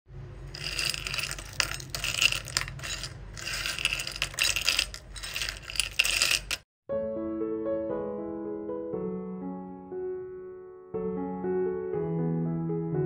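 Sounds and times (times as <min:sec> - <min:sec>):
candied almonds clattering on plate: 0:00.4 - 0:06.6.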